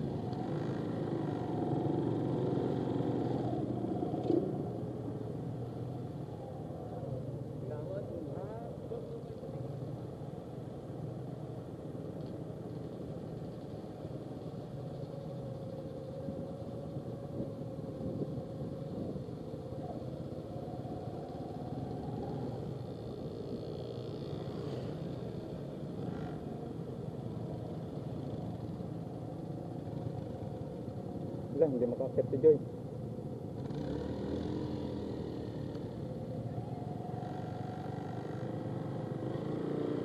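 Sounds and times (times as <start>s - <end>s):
motorcycle engines running: 0.0s - 40.0s.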